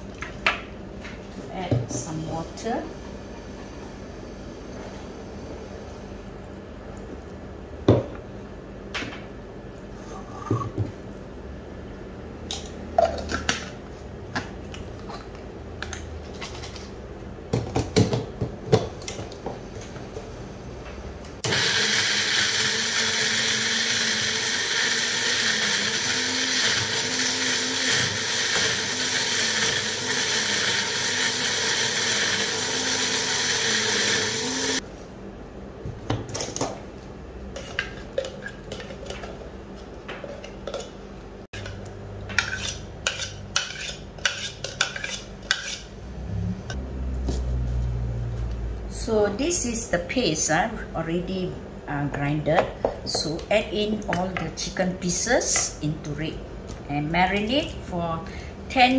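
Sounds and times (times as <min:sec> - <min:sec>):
blender grinding: 0:21.4 - 0:34.8.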